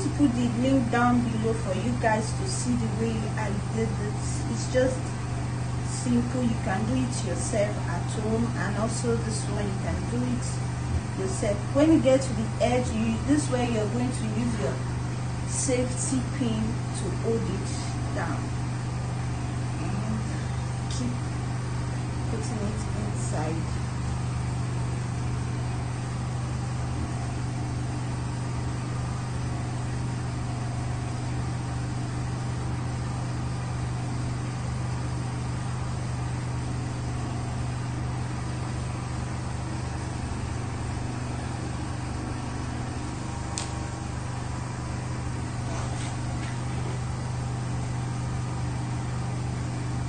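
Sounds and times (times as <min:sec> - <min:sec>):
machine humming: 0:00.0 - 0:50.0
sharp click: 0:43.5 - 0:43.8.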